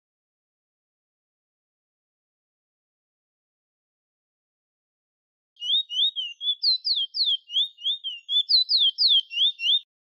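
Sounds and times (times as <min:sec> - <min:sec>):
finch singing high whistles: 0:05.6 - 0:09.9.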